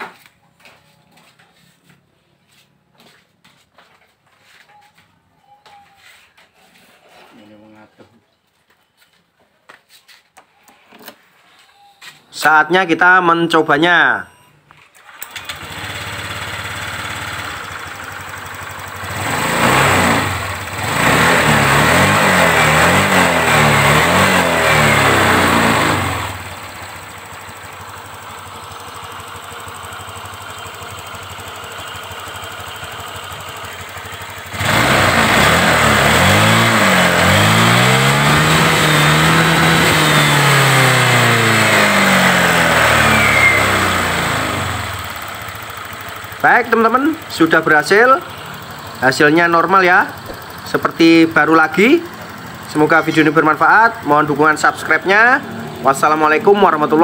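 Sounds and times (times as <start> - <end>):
scooter engine idling and revving: 15.0 - 57.0.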